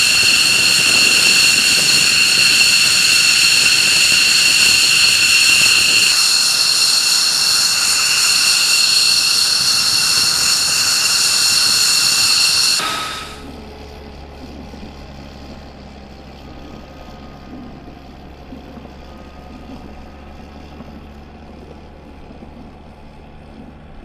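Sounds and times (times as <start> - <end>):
jet engine rush: 0.0 - 13.6
high-pitched turbine whine: 0.0 - 24.0.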